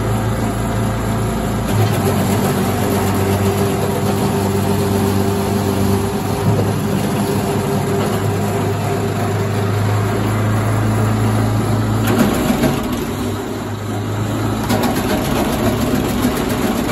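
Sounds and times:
wood chipper engine running: 0.0 - 16.9.

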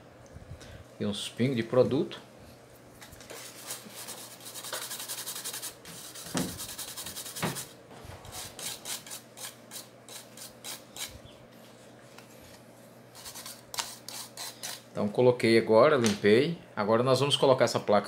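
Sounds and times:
brush scrubbing circuit board: 3.3 - 11.1, 13.2 - 14.8.

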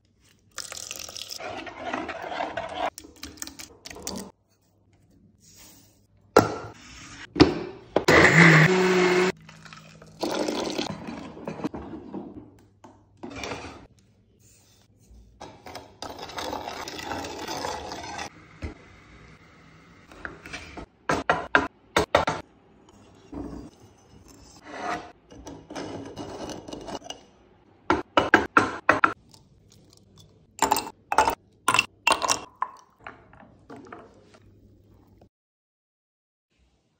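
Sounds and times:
scraping and stirring: 0.2 - 6.0, 9.2 - 18.8, 22.8 - 27.4.

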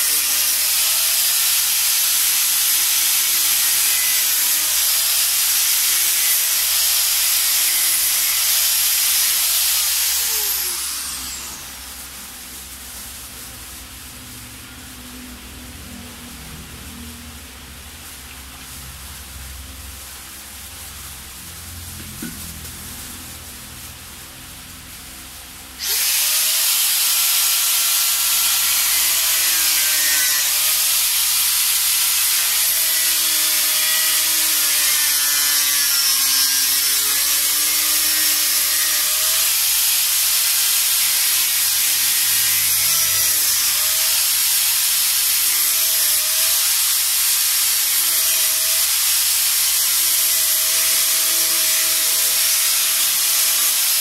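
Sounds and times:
grinder grinding fiberglass: 0.0 - 54.0
grinder motor whine: 7.7 - 12.0.

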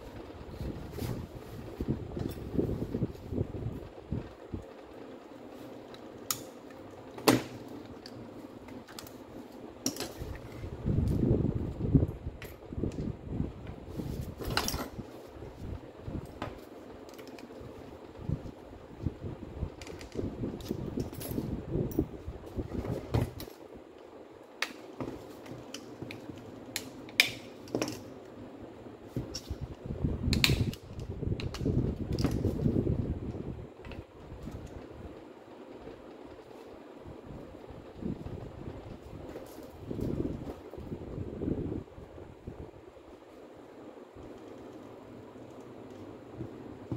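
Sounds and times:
clicks and clinks of tool parts: 26.8 - 28.1.

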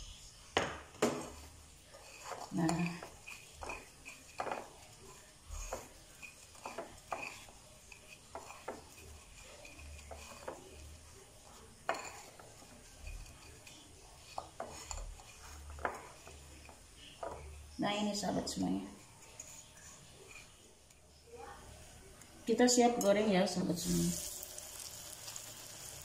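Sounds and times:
breadcrumbs rustling: 1.3 - 17.3.

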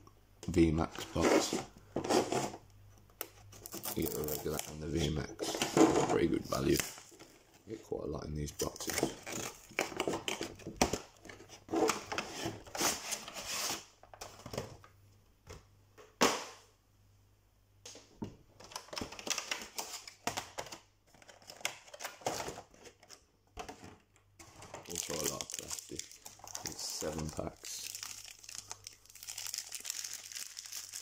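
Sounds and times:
plastic packaging crinkling: 3.6 - 7.3, 24.5 - 31.0.

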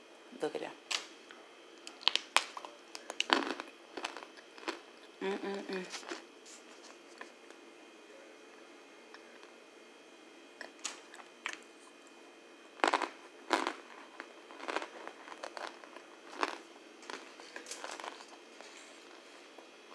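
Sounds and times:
person crunching cornstarch: 1.8 - 4.8, 12.8 - 19.2.

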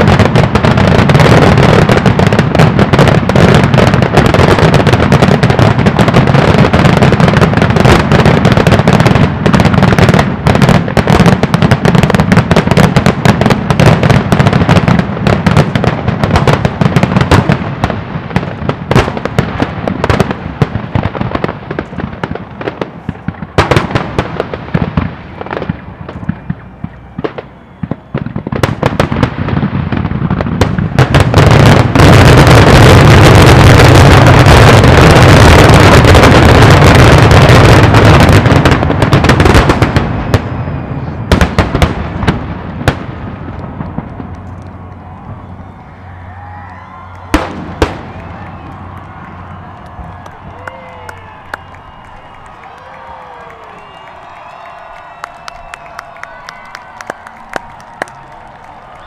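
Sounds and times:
fireworks bangs and crackles: 0.0 - 59.0.

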